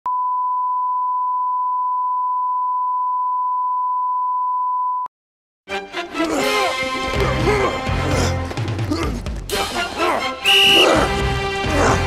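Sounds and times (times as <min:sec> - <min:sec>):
steady test tone beep: 0:00.1 - 0:05.1
music: 0:05.7 - 0:12.0.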